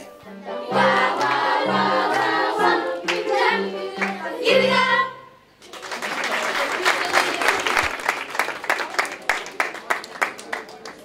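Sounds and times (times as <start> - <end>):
children's choir singing: 0.0 - 5.4.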